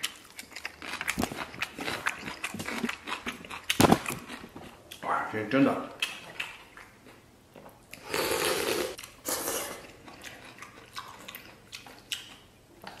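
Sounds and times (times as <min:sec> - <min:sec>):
chewing: 0:00.0 - 0:05.1, 0:06.0 - 0:08.3, 0:08.9 - 0:13.0
noodle slurping: 0:08.0 - 0:10.0.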